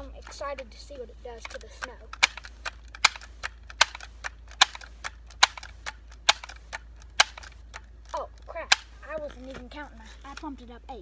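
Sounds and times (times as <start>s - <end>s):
air rifle pump lever clacking: 1.4s - 9.6s.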